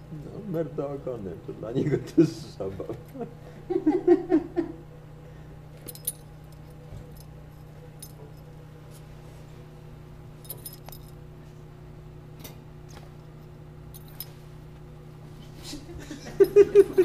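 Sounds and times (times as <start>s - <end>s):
steady low hum: 0.0s - 17.0s
collar tags jingling: 5.8s - 7.3s, 10.4s - 11.2s.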